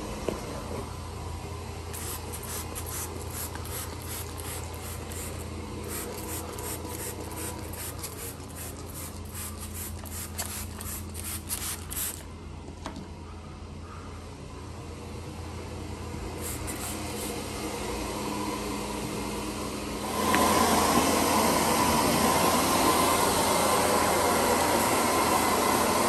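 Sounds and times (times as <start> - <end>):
low machine hum: 0.0 - 26.0
brush scrubbing carpet: 2.0 - 10.8.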